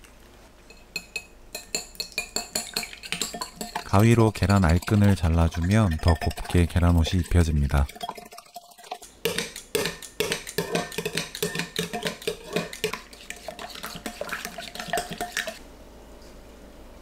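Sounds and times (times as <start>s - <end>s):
metal utensil clinking on glass bowl: 0.7s - 15.6s.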